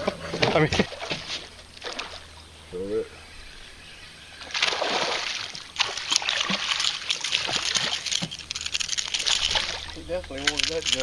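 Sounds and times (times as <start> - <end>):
fish splashing in water: 0.8 - 2.4, 4.4 - 11.0.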